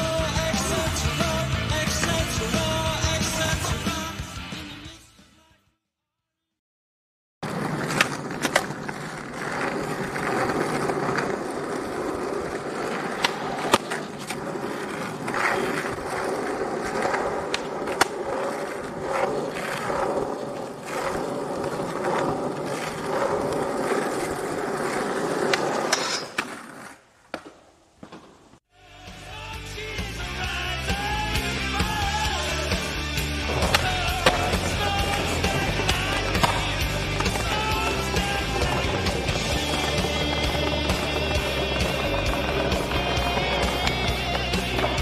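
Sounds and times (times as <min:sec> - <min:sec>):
skateboard clacking on ground: 0:07.4 - 0:28.6, 0:33.5 - 0:45.0
skateboard wheel rumble: 0:07.4 - 0:28.6, 0:31.1 - 0:45.0.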